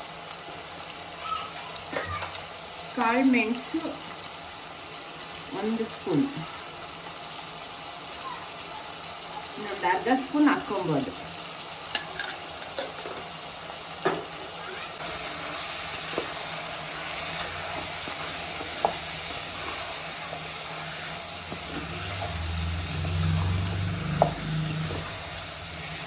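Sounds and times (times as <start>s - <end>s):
chicken sizzling in hot oil: 0.0s - 26.0s
spatula stirring in pot: 15.0s - 26.0s.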